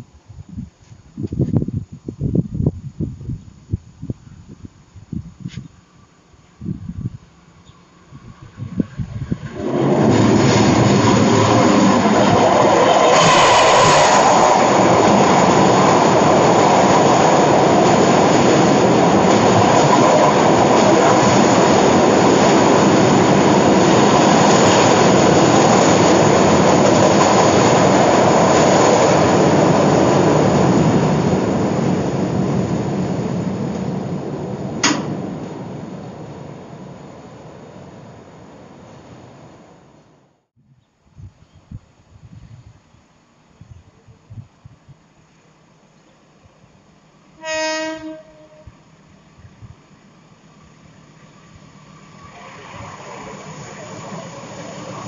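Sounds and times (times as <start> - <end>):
train rumbling over bridge: 5.8 - 40.4, 41.0 - 55.0
sharp click: 34.8 - 35.2.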